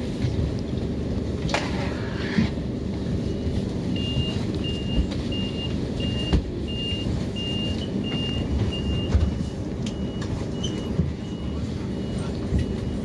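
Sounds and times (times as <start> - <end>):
short high warning beeps: 3.2 - 13.0.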